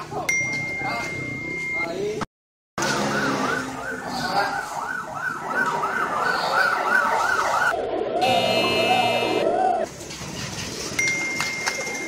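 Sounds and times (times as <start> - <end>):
siren yelping: 2.8 - 9.9.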